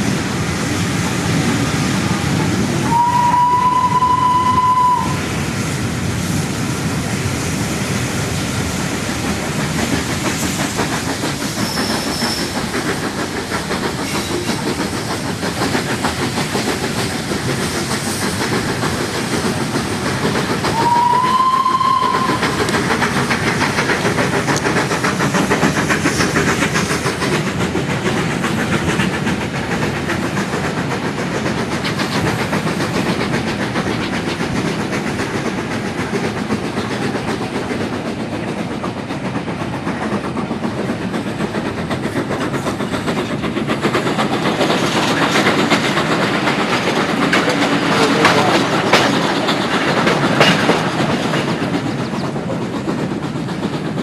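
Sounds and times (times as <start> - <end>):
train rumble and rail noise: 0.0 - 54.0
train whistle: 2.8 - 5.2, 20.7 - 22.6.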